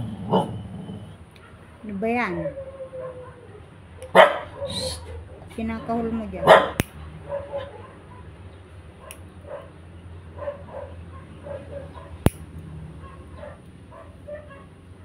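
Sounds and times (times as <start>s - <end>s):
dog barking: 0.3s - 0.5s, 2.5s - 8.3s, 9.0s - 9.8s, 10.4s - 12.2s, 13.0s - 14.8s
nail nippers clicking: 6.8s - 7.0s, 9.0s - 9.2s, 12.2s - 12.7s.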